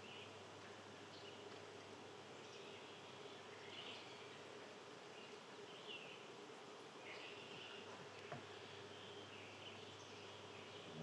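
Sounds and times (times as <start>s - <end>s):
soft hiss: 0.0s - 11.0s
faint bird chirps: 2.4s - 4.5s, 7.0s - 11.0s
low buzz: 10.7s - 11.0s.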